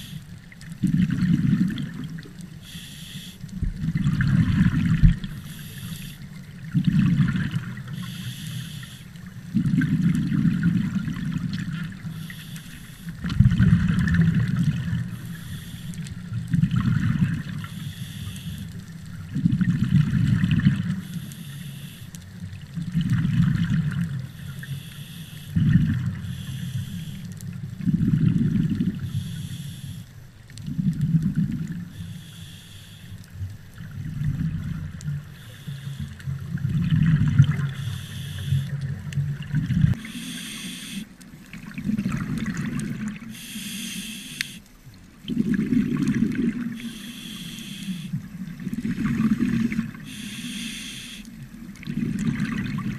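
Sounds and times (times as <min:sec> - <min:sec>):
diver inhaling through regulator: 0:00.0 - 0:00.3, 0:02.6 - 0:03.5, 0:05.2 - 0:06.3, 0:07.9 - 0:09.2, 0:12.0 - 0:13.2, 0:15.0 - 0:16.1, 0:17.6 - 0:18.7, 0:21.0 - 0:22.2, 0:24.3 - 0:27.3, 0:29.0 - 0:30.1, 0:31.9 - 0:33.2, 0:35.3 - 0:36.3, 0:37.6 - 0:38.8, 0:39.9 - 0:41.2, 0:43.3 - 0:44.7, 0:46.7 - 0:48.3, 0:49.4 - 0:51.4
exhaled bubbles gurgling: 0:00.0 - 0:29.9, 0:30.5 - 0:32.2, 0:33.2 - 0:52.9.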